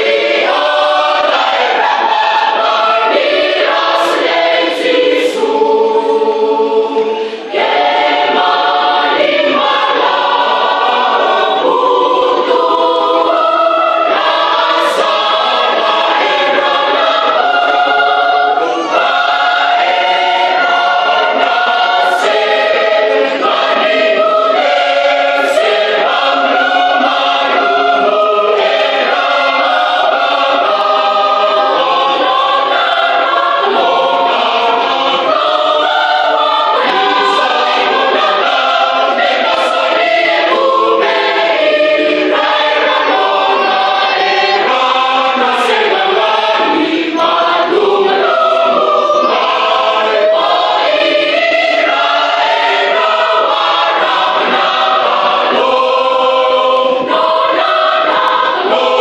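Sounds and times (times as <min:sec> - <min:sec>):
mixed choir singing a hymn: 0:00.0 - 0:59.0.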